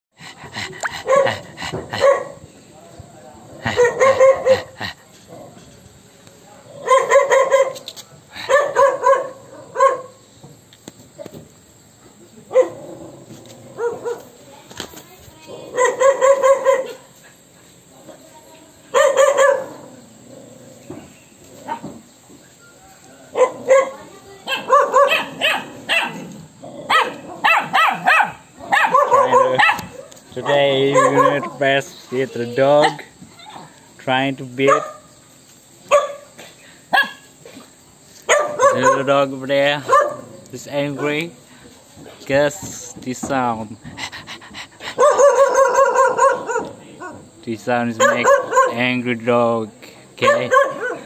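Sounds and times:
dog barking: 0.8 - 2.4, 3.6 - 4.8, 6.8 - 7.8, 8.4 - 10.2, 12.5 - 12.8, 13.8 - 14.3, 15.7 - 17.1, 18.9 - 19.8, 23.3 - 26.2, 26.9 - 31.6, 34.6 - 35.1, 35.9 - 36.3, 36.9 - 37.3, 38.3 - 39.1, 39.8 - 40.3, 45.0 - 47.2, 48.0 - 48.8, 50.2 - 51.0.

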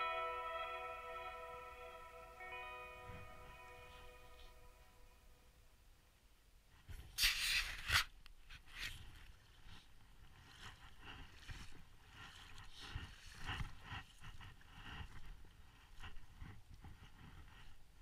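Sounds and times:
footsteps through dry reeds: 8.6 - 18.0.

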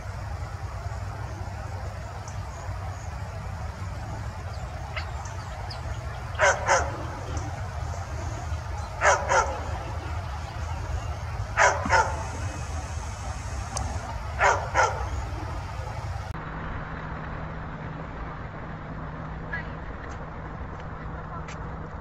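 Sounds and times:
low steady rumble: 0.0 - 22.0
dog barking: 6.3 - 16.0.

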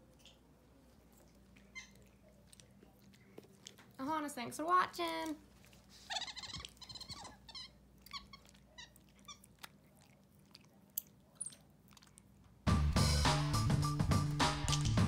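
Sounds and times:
monkey high squeaks: 6.1 - 9.4.

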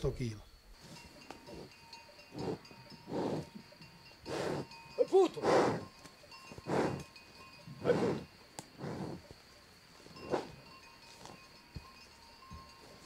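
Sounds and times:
bull digging into soil: 4.2 - 4.8, 5.4 - 7.1, 7.8 - 9.3, 10.1 - 11.4.

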